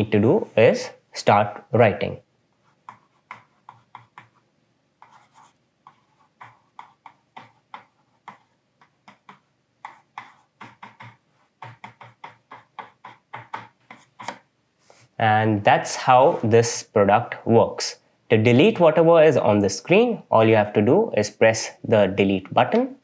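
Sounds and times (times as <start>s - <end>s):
pen scratching on writing pad: 2.6s - 4.4s, 5.0s - 14.5s.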